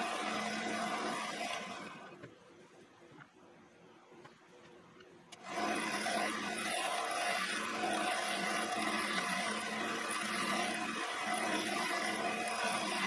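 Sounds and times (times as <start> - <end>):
grinder motor humming: 0.0 - 2.2, 5.4 - 13.0.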